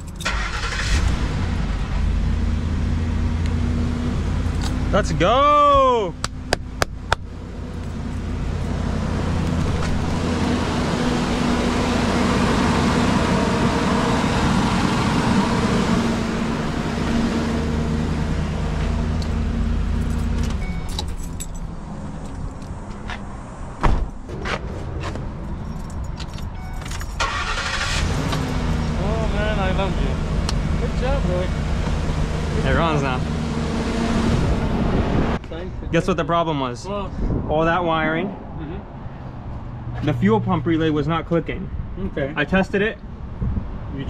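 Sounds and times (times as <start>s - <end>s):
van engine idling: 27.2s - 33.6s.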